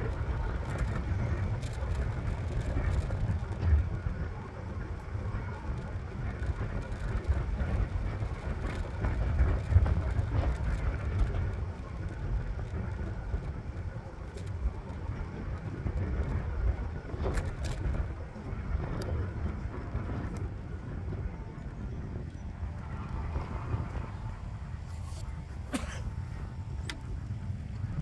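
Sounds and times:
scooter wheels rolling on asphalt: 0:00.0 - 0:28.0.

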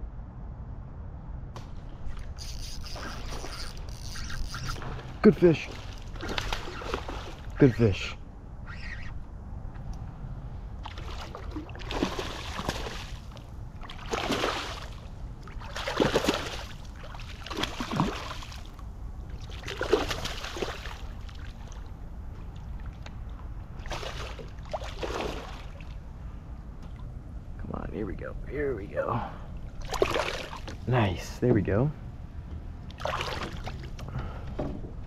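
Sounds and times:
low rumble: 0:00.0 - 0:02.4
water sloshing around a boat: 0:01.6 - 0:27.6, 0:28.9 - 0:35.0.

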